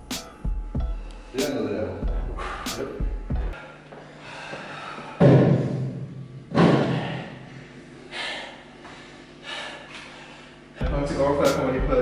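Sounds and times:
man breathing hard: 0:00.5 - 0:01.5, 0:02.1 - 0:06.0, 0:06.6 - 0:10.9.

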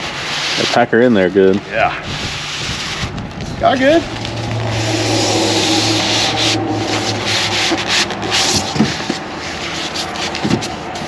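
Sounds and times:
cardboard and packing rustling: 0:08.3 - 0:11.0.

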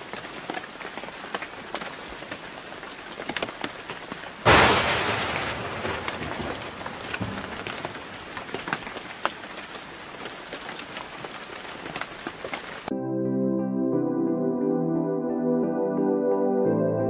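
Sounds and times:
rain drops ticking on hard surface: 0:00.0 - 0:12.9
thunderclap: 0:04.4 - 0:09.4.

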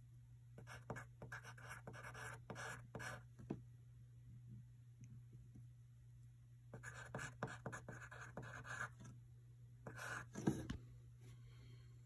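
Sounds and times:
faint low hum: 0:00.0 - 0:12.0
pencil scratching on paper: 0:00.6 - 0:03.2, 0:06.8 - 0:09.1, 0:09.8 - 0:10.7.

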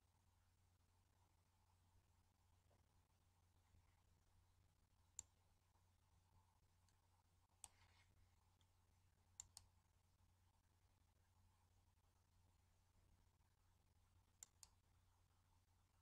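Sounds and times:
low steady hum: 0:00.0 - 0:16.0
faint computer mouse clicks: 0:07.6 - 0:08.7, 0:09.4 - 0:09.7, 0:14.4 - 0:14.8.

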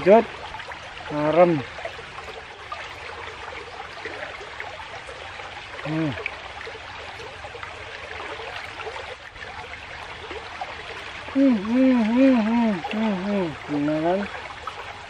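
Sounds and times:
stream rushing over rocks: 0:00.0 - 0:15.0
brief low voice: 0:11.4 - 0:14.3.

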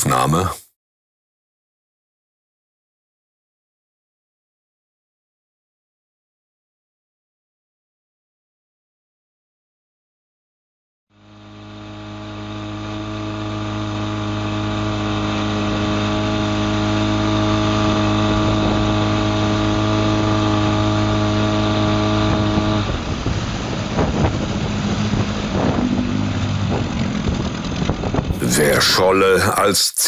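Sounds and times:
outboard motor running: 0:11.2 - 0:29.4.

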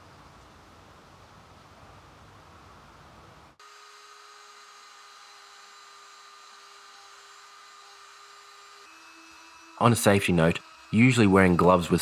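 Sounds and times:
rotary tool whining: 0:03.6 - 0:12.0.

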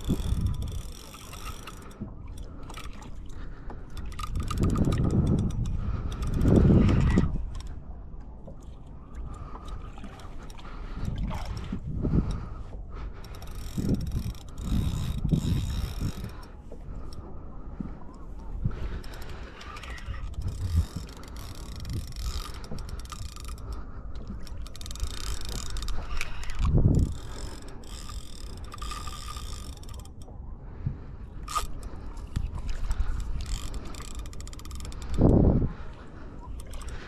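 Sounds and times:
fishing reel cranking: 0:00.0 - 0:07.7, 0:13.2 - 0:16.5, 0:18.8 - 0:30.3, 0:31.4 - 0:35.5.

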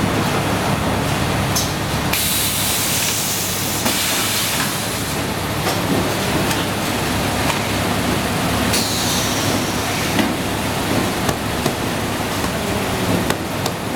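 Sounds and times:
packing machine humming: 0:00.0 - 0:13.9.

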